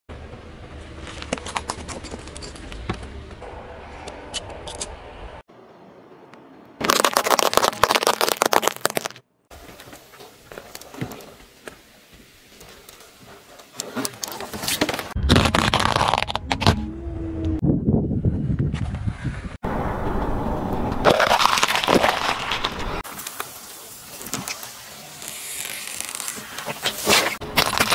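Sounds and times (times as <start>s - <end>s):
objects crunching under tyre: 6.8s - 11.4s, 13.8s - 16.8s, 21.0s - 27.9s.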